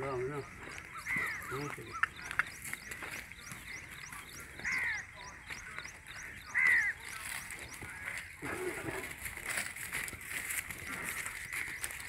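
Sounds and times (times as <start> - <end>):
crow cawing: 0.6 - 2.6, 4.0 - 9.1, 10.8 - 12.0.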